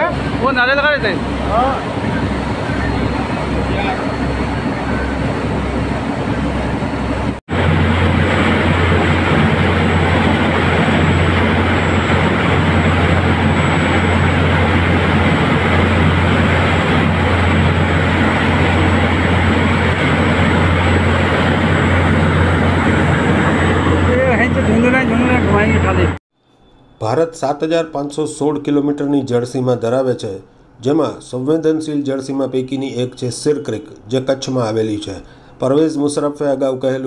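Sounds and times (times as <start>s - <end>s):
rushing wind: 0.0s - 26.2s
water noise: 0.0s - 26.2s
boat engine droning: 0.0s - 27.0s.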